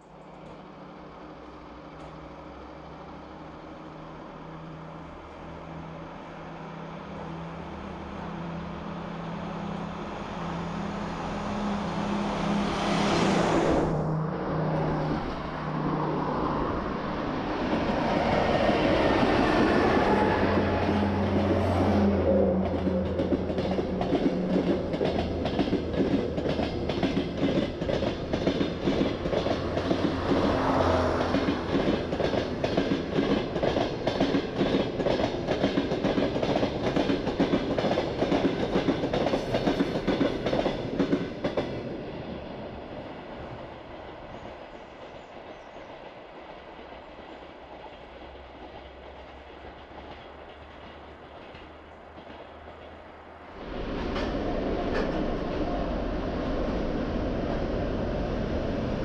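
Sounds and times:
train wheels knocking over rail joints: 22.6s - 41.7s.

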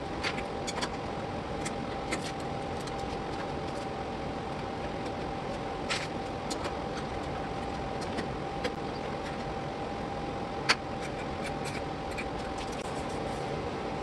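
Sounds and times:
faint whine: 0.0s - 14.0s
mechanical hum: 0.0s - 14.0s.

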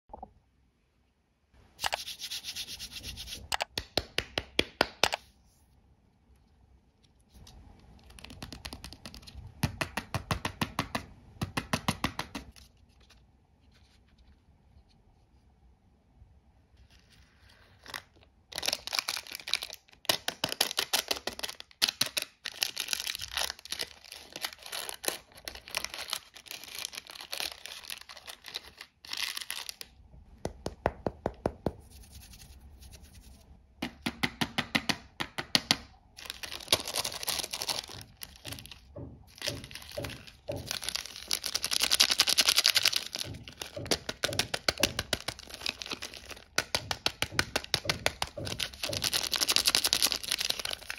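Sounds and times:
plastic wrappers crinkling and tearing: 17.8s - 29.9s, 36.2s - 50.9s.

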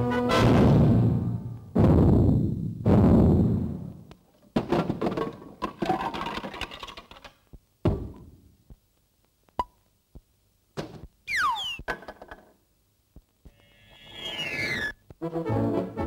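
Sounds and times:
heavy drum-like boom: 0.4s - 3.9s
clattering: 4.4s - 7.4s
thuds and knocks: 7.8s - 8.3s, 10.8s - 11.1s.

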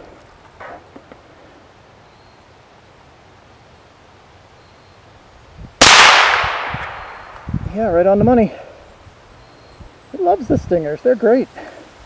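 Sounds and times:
faint outdoor background: 0.0s - 12.0s
rifle shot: 5.8s - 7.4s.

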